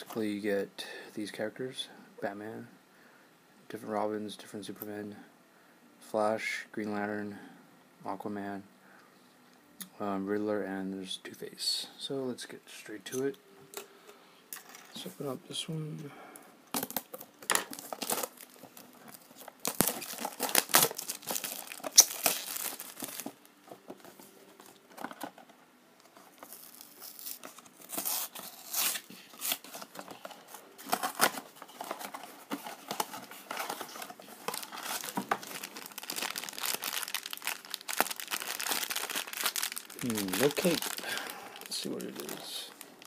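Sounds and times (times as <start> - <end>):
foil bag crinkling: 16.8 - 23.4, 26.2 - 43.0
cardboard box torn open: 19.6 - 23.2, 26.5 - 29.9.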